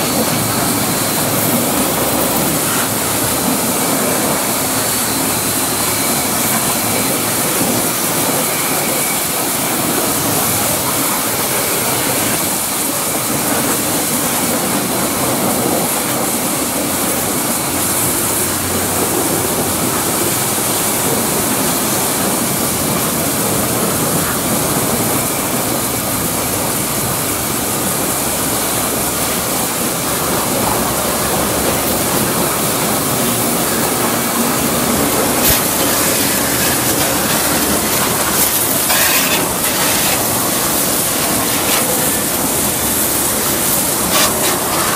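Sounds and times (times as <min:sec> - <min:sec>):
pressure washer spraying water: 0:00.0 - 0:44.9.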